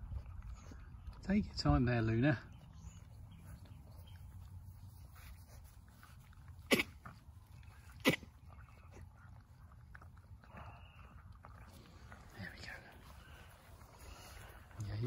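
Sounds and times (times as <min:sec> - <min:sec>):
puppies feeding from metal bowl: 0:00.0 - 0:15.0
puppy sneezing: 0:06.6 - 0:07.1, 0:08.0 - 0:08.3.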